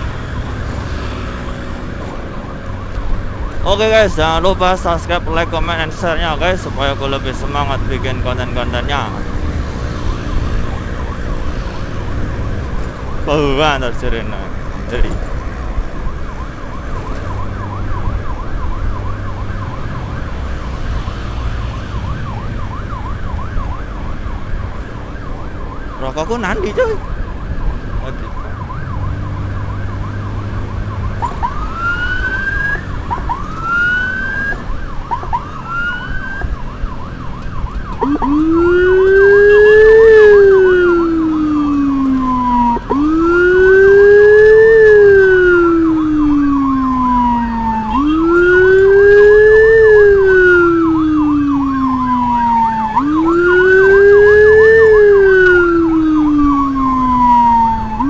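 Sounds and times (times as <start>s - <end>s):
deep siren tone: 0.0s - 58.0s
siren whoops: 0.0s - 58.0s
wailing siren: 0.0s - 58.0s
warbling siren: 0.0s - 58.0s.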